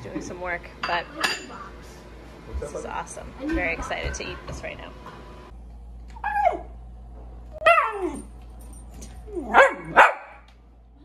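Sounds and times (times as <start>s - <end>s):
young dog barking: 9.5s - 10.4s.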